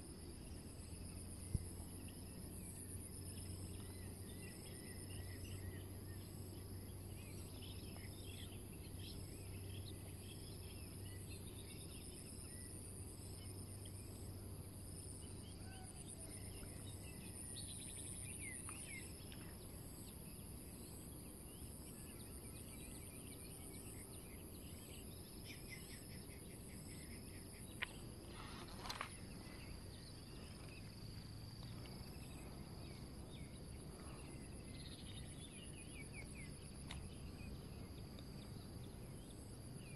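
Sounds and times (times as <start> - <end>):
insects buzzing: 0.0 - 39.9
brief rustle: 28.3 - 29.2.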